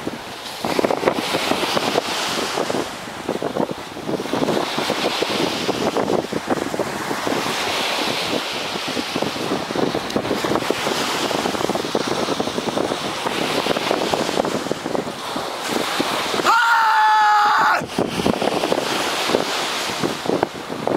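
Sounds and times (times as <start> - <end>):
surf: 0.0 - 20.9
wind buffeting microphone: 0.0 - 20.9
person shouting: 16.4 - 17.9.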